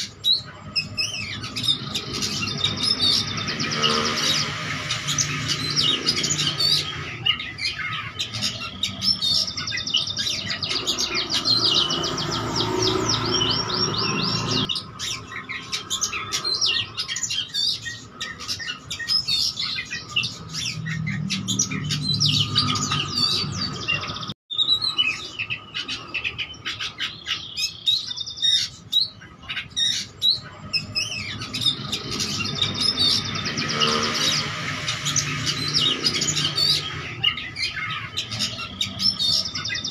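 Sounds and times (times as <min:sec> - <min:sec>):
songbird singing chirps and trills: 0:00.0 - 0:39.9.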